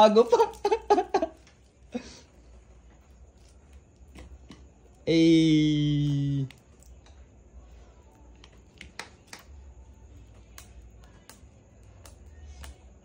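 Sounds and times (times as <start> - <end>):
man calling out: 5.1 - 6.5.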